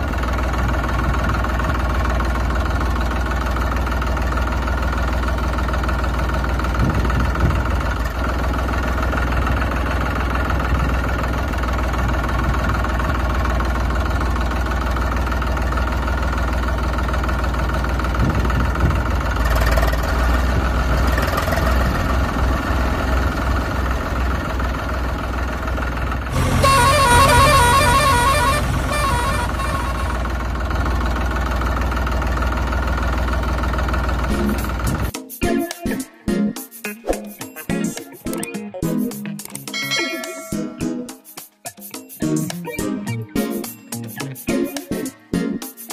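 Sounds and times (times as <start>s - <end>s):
tractor engine running: 0.0s - 35.1s
horn honking in quick pulses: 26.3s - 30.5s.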